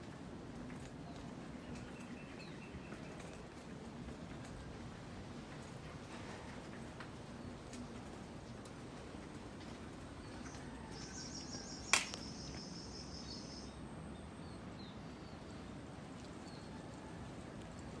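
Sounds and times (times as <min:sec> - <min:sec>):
sharp click: 0:11.9 - 0:12.3.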